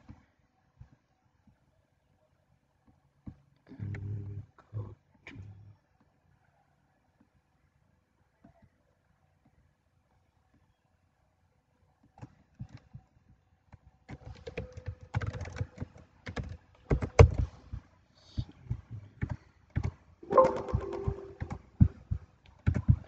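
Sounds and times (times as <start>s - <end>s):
computer keyboard typing: 14.2s - 17.4s, 19.2s - 21.6s.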